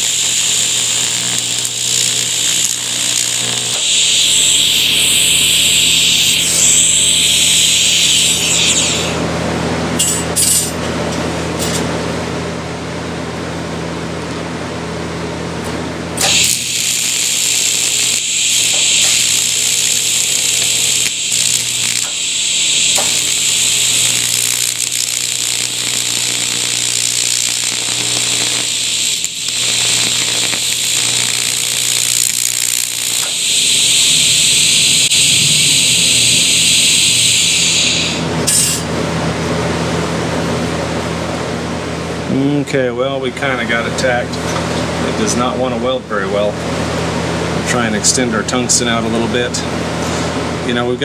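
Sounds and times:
welding arc buzzing hiss: 0:00.0 - 0:10.8, 0:16.1 - 0:39.6.

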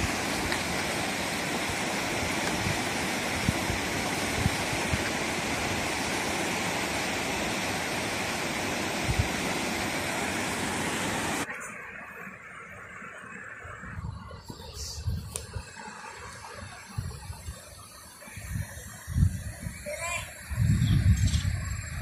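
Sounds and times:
river water rushing over rocks: 0:00.0 - 0:13.4.

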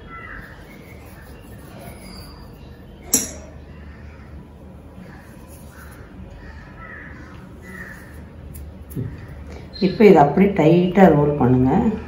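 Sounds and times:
spoon clinking on steel bowl: 0:03.1 - 0:03.6.

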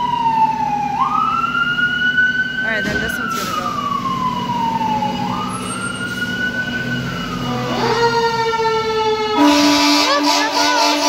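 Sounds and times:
fire engine idling: 0:00.0 - 0:11.0
wailing siren: 0:00.0 - 0:11.0
air horn blasting: 0:09.2 - 0:11.0.

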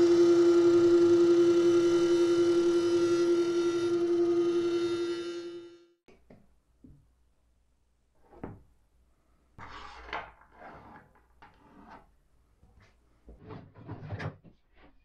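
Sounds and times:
panel scraping across table: 0:09.6 - 0:12.1.

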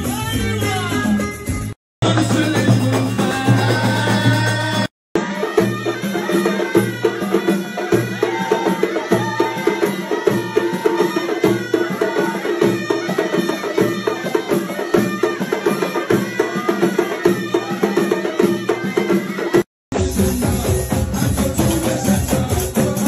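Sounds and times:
deep drum beats: 0:00.0 - 0:04.9, 0:19.9 - 0:23.0
sharp hand percussion: 0:00.0 - 0:23.0.

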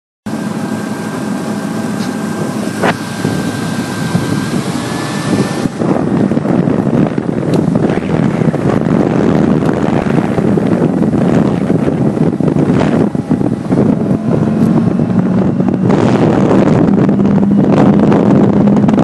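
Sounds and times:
outboard motor whining: 0:00.2 - 0:19.0
wind on the microphone: 0:00.3 - 0:19.0.

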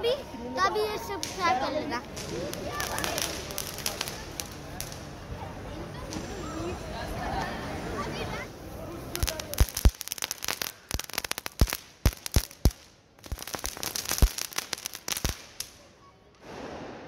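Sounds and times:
firecrackers popping: 0:01.0 - 0:05.4, 0:06.0 - 0:06.5, 0:08.6 - 0:17.0.

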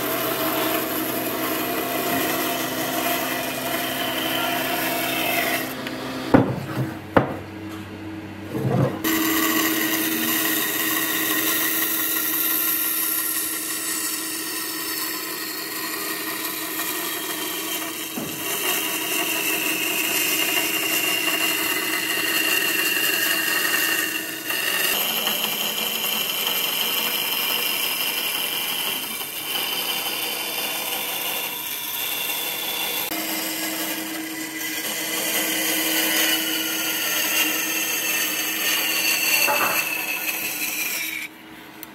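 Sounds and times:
band saw cutting wood: 0:00.0 - 0:07.3, 0:08.6 - 0:41.9
sharp knocks: 0:06.3 - 0:07.4.

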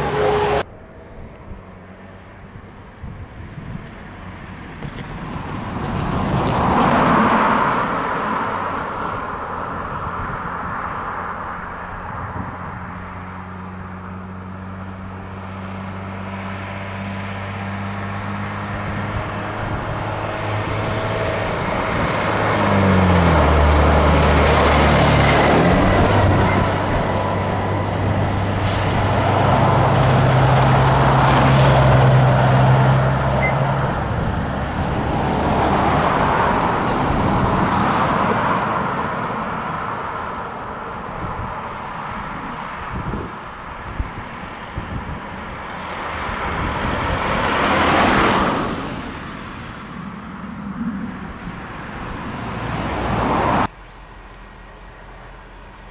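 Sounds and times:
diesel truck driving past: 0:00.0 - 0:44.0
vehicle road noise: 0:00.0 - 0:55.9.

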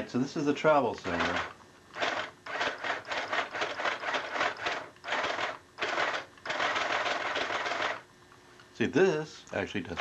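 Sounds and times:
sewing machine stitching: 0:01.0 - 0:08.0.

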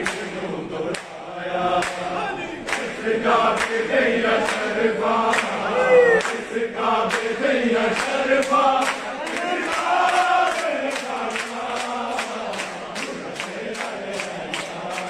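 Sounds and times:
steady clapping: 0:00.0 - 0:05.6, 0:06.2 - 0:15.0
men chanting in unison: 0:00.0 - 0:15.0.

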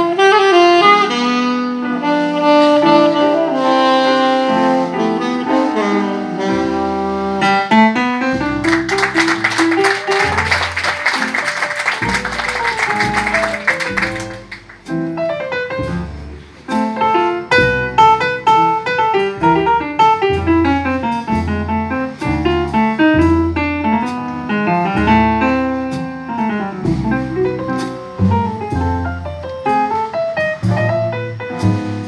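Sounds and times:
piano chords and runs: 0:02.9 - 0:32.0
saxophone phrase: 0:08.6 - 0:14.8
plucked double bass: 0:19.3 - 0:32.0.

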